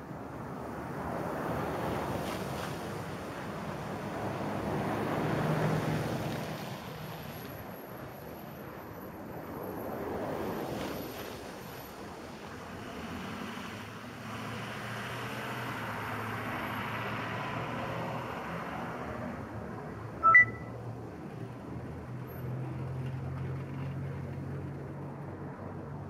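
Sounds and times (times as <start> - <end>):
cars driving past: 12.7 - 26.0
short loud beep: 20.2 - 20.7.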